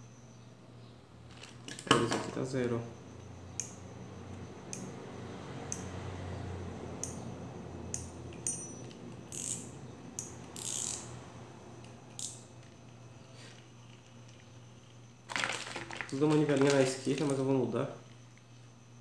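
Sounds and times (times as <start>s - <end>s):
fishing reel clicking: 9.3s - 11.1s
fishing reel whirring: 9.3s - 11.1s.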